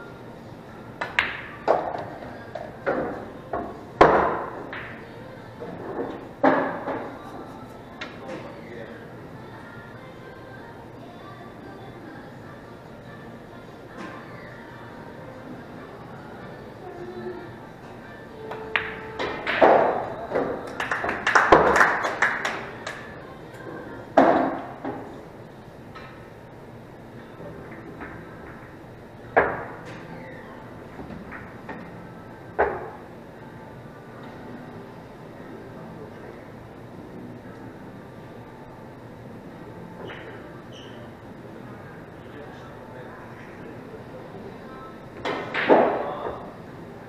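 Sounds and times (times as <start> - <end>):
pool balls clicking and knocking: 0.9 - 5.0, 18.4 - 23.2, 27.3 - 30.2, 30.9 - 33.1
pool cue striking ball: 1.0 - 2.1, 18.5 - 22.6, 45.2 - 46.4
billiard balls clacking: 18.6 - 23.0.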